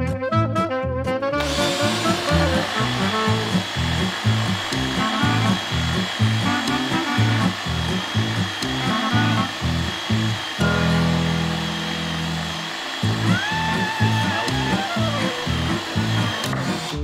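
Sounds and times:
background music with beat: 0.0 - 11.5
cordless drill whining: 1.4 - 17.0.

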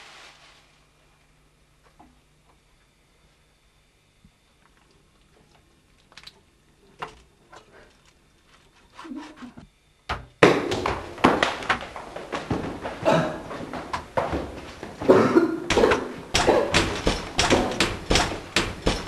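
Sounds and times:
dense run of knocks: 10.1 - 19.0.

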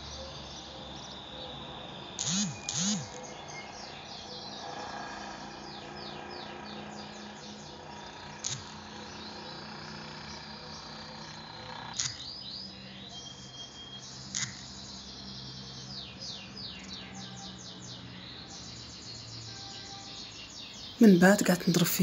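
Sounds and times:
bird chirping: 0.4 - 8.4.

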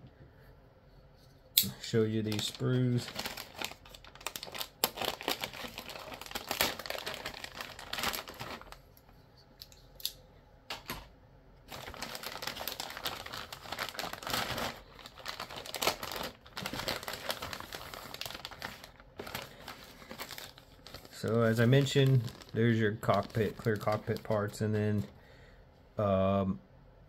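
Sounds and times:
plastic bag crinkling: 1.8 - 8.9, 11.7 - 25.1.

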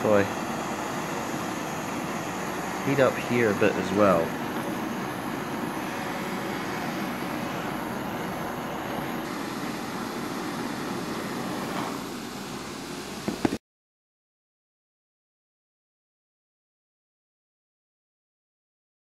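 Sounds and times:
blowtorch hissing: 0.0 - 13.6.

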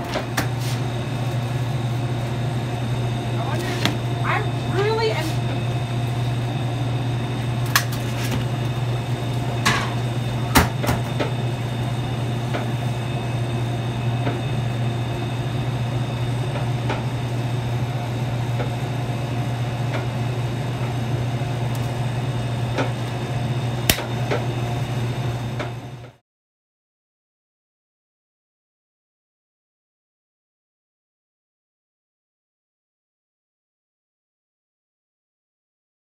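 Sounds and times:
kitchen equipment humming: 0.0 - 26.2.

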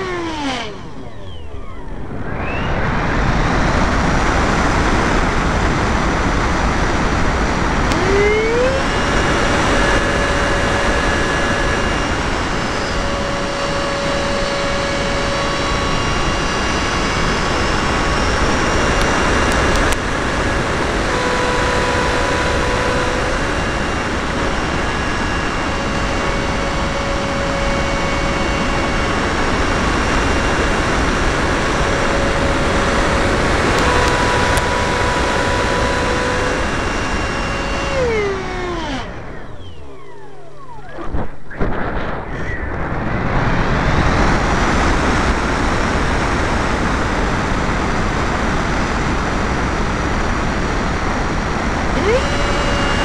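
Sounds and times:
air rushing over microphone: 0.0 - 21.2
model plane motor whine: 0.0 - 41.7, 43.5 - 53.0.

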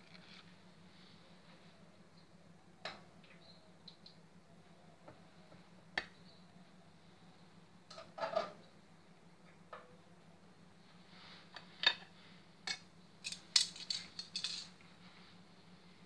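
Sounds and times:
metal tongs clinking on a pot: 12.7 - 14.7.

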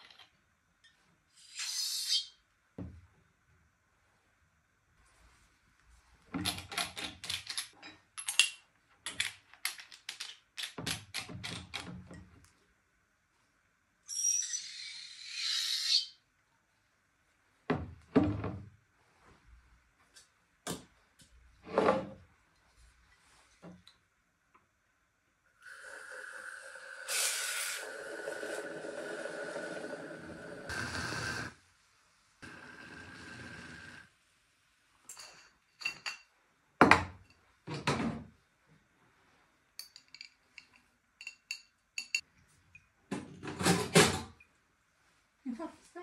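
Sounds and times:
cream siphon hissing: 25.6 - 31.6.

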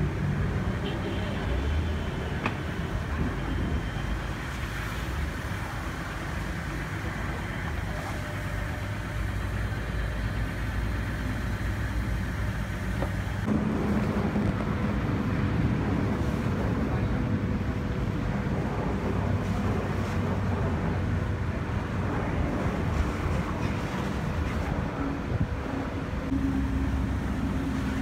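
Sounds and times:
diesel engine idling: 5.4 - 19.9.

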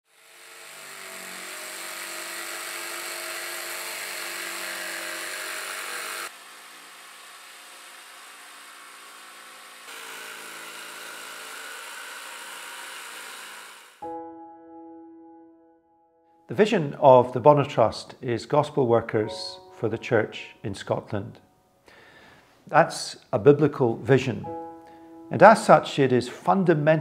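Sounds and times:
electric jigsaw cutting board: 0.1 - 14.1.

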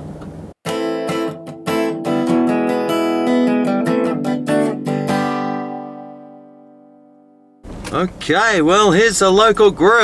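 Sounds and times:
strummed acoustic guitar chords: 0.6 - 7.6.

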